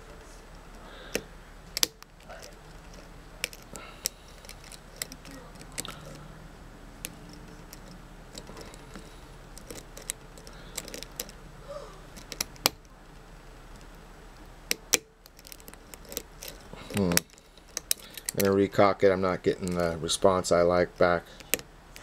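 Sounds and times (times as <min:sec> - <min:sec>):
faint steady hum: 0:00.0 - 0:22.0
lock pick clicking in lock: 0:01.8 - 0:06.2, 0:07.0 - 0:11.4, 0:12.1 - 0:12.9, 0:14.7 - 0:18.5, 0:21.4 - 0:22.0.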